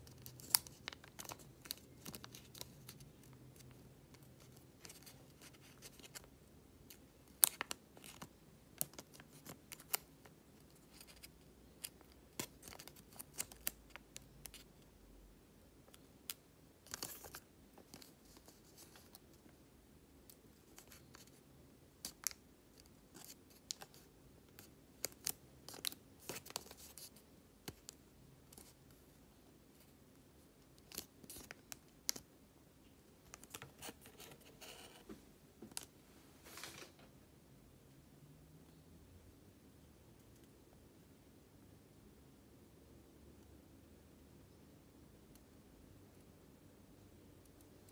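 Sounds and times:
paper rustling: 0:36.4 - 0:37.0.

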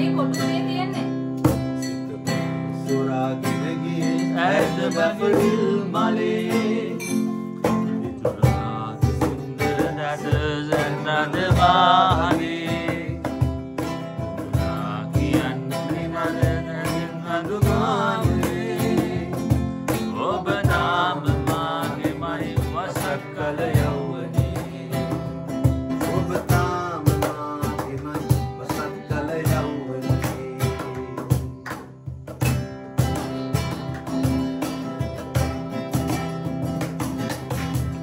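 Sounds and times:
acoustic guitar strumming: 0:00.0 - 0:38.0
cajon beating rhythm: 0:00.0 - 0:38.0
man singing: 0:01.8 - 0:31.6.

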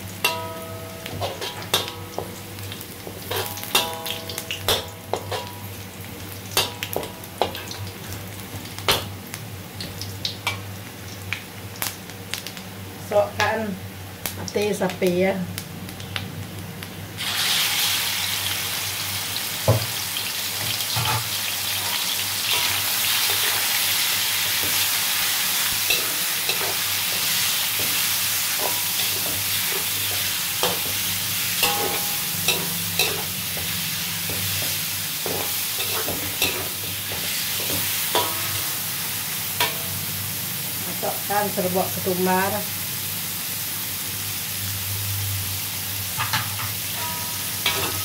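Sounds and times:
liver sizzling in hot oil: 0:00.0 - 0:48.0
metal spatula scraping a wok: 0:25.9 - 0:38.8, 0:46.2 - 0:48.0.

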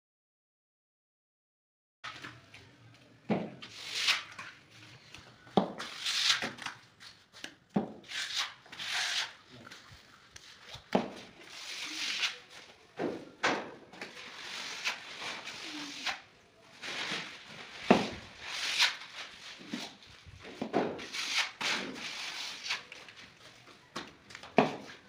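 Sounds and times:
trowel scraping adhesive: 0:03.6 - 0:04.6, 0:05.6 - 0:06.8, 0:08.0 - 0:12.7, 0:14.0 - 0:20.0, 0:21.0 - 0:23.0.

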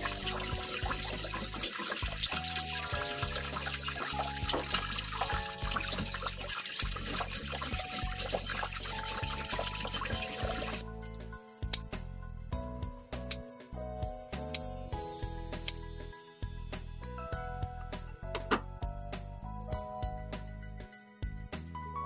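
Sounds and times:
tap water running into metal bowl: 0:00.0 - 0:10.8
background music: 0:00.0 - 0:22.0.

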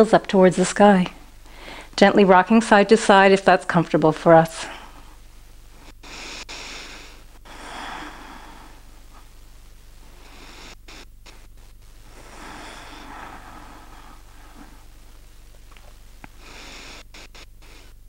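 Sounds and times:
steady low hum: 0:00.0 - 0:18.0
woman breathing slowly: 0:01.4 - 0:02.0, 0:06.0 - 0:09.3, 0:12.1 - 0:15.0.

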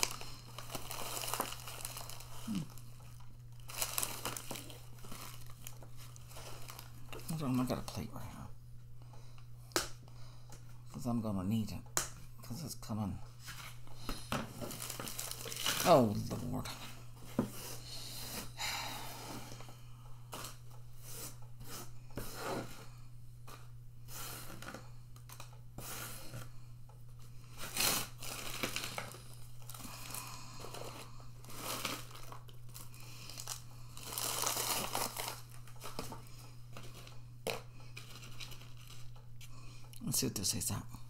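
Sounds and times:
ice cream sandwich crackling: 0:00.0 - 0:07.7, 0:14.8 - 0:16.1, 0:27.7 - 0:36.0
wrapper crinkling and tearing: 0:00.0 - 0:07.9, 0:14.5 - 0:16.6, 0:27.5 - 0:36.2, 0:36.8 - 0:39.2.

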